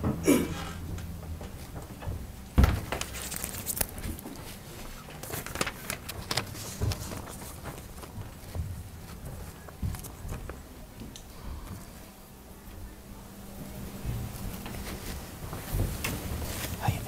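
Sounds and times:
paper and pencils rustling: 2.8s - 12.8s, 13.6s - 17.0s
footsteps: 13.4s - 17.0s.

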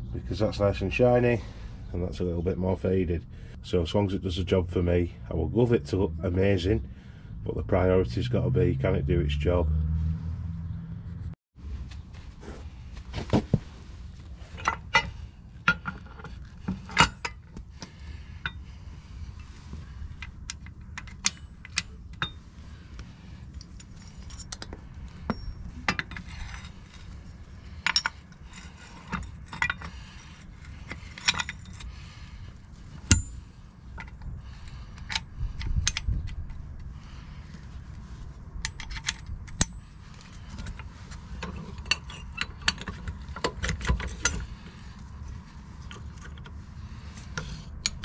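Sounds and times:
steady low rumble: 0.0s - 48.0s
metal clinks and knocks: 23.4s - 32.1s, 32.9s - 36.9s, 38.6s - 46.6s.

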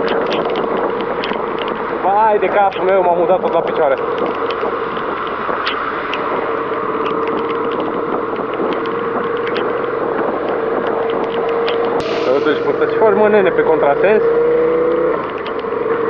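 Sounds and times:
motorcycle engine cruising: 0.0s - 16.0s
wind and tyres on wet road: 0.0s - 16.0s.

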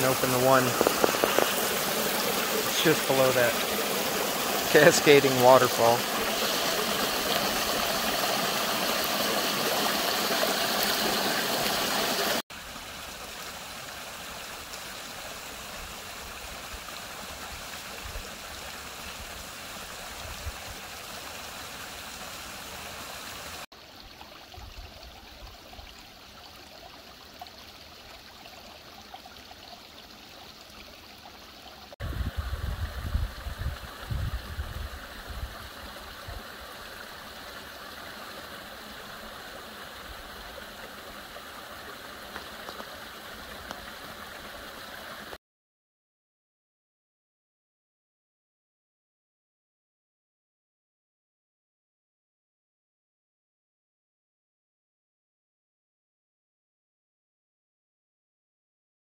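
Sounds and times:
water cascading and splashing: 0.0s - 45.4s.

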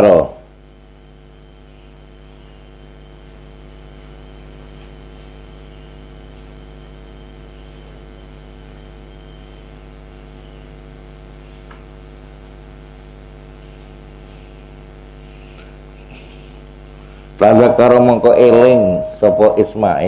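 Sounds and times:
electrical mains hum: 0.0s - 20.0s.

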